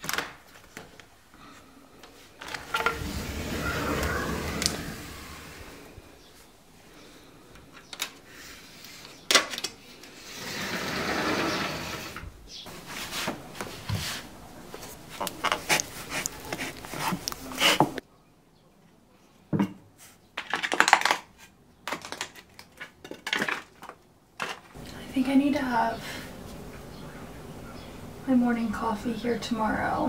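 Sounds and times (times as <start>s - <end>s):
sliding glass door rolling open: 2.4s - 6.2s, 10.2s - 12.2s.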